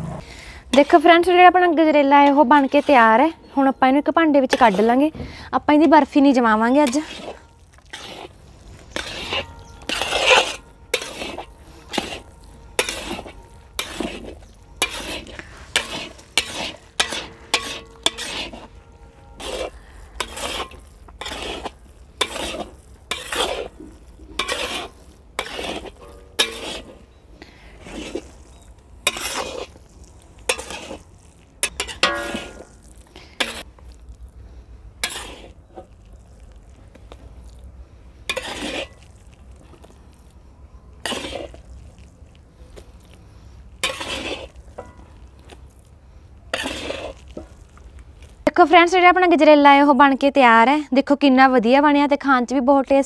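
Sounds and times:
metal spatula scraping iron pan: 0.7 - 33.8, 35.0 - 36.0, 38.2 - 39.2, 41.0 - 42.6, 43.3 - 45.6, 46.5 - 47.8.

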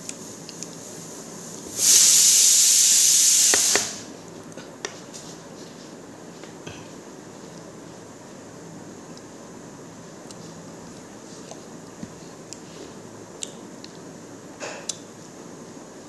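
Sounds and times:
loud steady hiss: 0.0 - 4.2.

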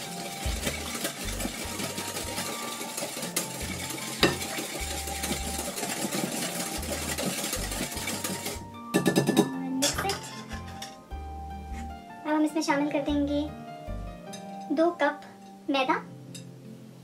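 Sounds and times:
wire whisk clattering in glass bowl: 0.0 - 10.9.

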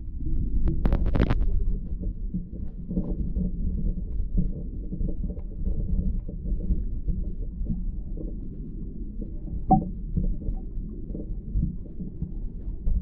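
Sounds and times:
muffled water sloshing underwater: 0.0 - 13.0.

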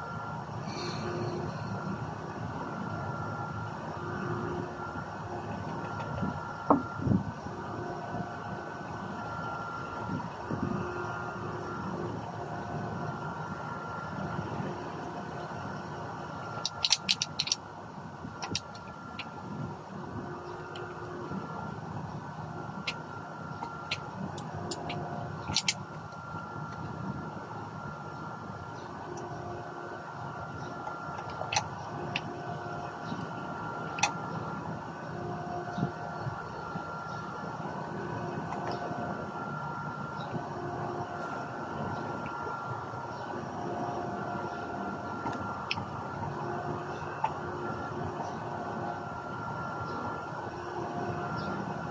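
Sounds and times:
steady background hum: 0.0 - 51.9.

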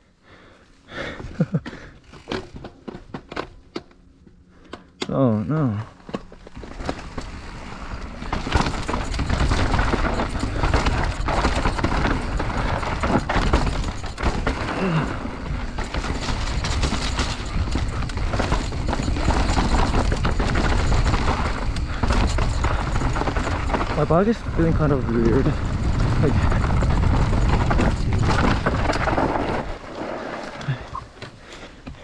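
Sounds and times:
tyres on dirt and gravel: 0.9 - 32.0
bike rattling and knocking: 1.4 - 4.9, 6.0 - 32.0
wind rumbling on microphone: 8.0 - 29.9.

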